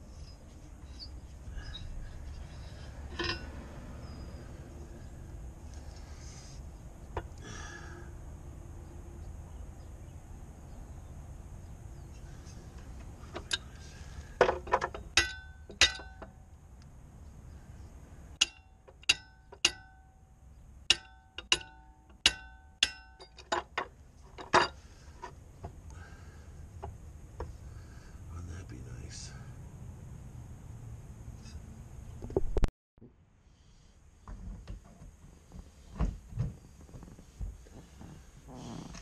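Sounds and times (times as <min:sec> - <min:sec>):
wrench striking metal propeller: 0:03.1 - 0:03.5, 0:14.6 - 0:16.3, 0:18.4 - 0:20.1, 0:20.9 - 0:23.8.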